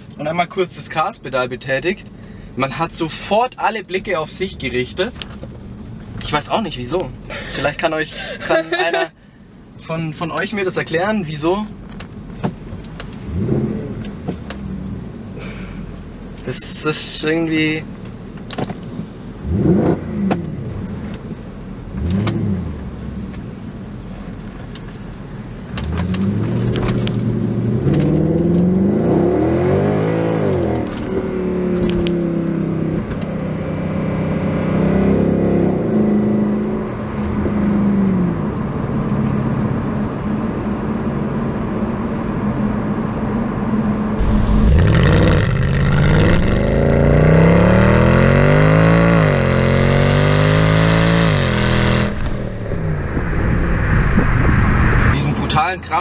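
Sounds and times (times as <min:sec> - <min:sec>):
car engine accelerating: 0:19.4 - 0:23.7, 0:25.7 - 0:56.0.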